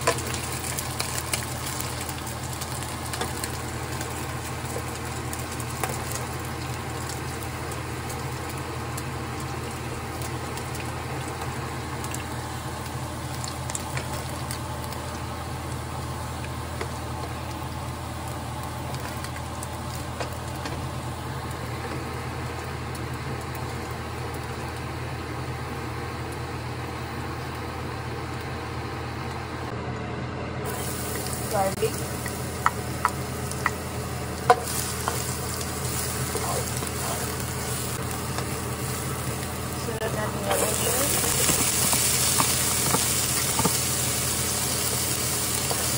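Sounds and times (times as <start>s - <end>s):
steady low motor hum: 0.0s - 45.9s.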